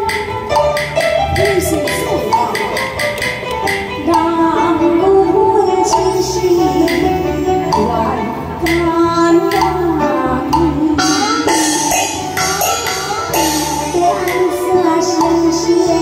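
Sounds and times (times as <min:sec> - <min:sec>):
percussion strokes: 0:00.0 - 0:04.4, 0:10.5 - 0:16.0
amplified band accompaniment: 0:00.0 - 0:16.0
woman singing opera aria: 0:04.0 - 0:12.2, 0:13.3 - 0:16.0.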